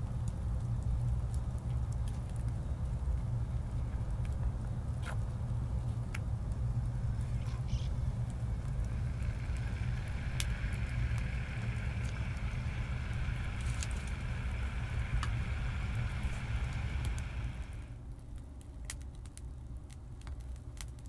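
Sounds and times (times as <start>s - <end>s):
low rumble: 0.0s - 18.4s
wood fire crackling and popping: 0.0s - 21.0s
pot hissing: 7.0s - 18.0s.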